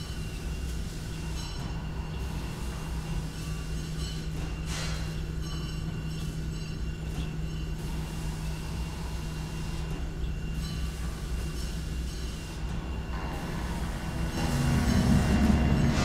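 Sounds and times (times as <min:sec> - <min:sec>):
low mechanical hum: 0:00.0 - 0:16.0
thin high whine: 0:10.6 - 0:16.0.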